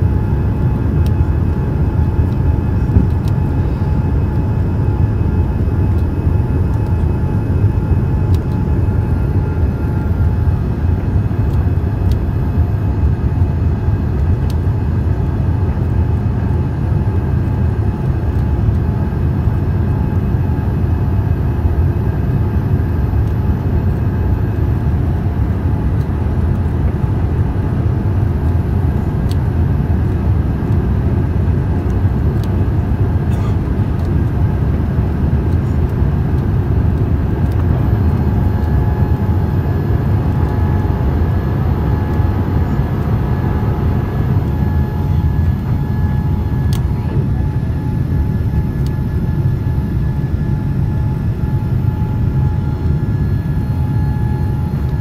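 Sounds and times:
jet engine and airflow rumble: 0.0s - 55.0s
faint whining tones: 28.2s - 55.0s.

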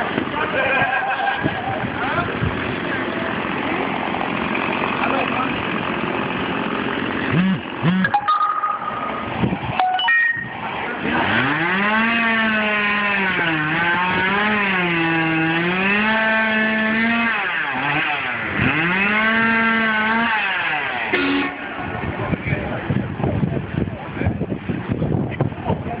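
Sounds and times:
chainsaw cutting at high revs: 2.3s - 8.1s, 10.9s - 21.5s.

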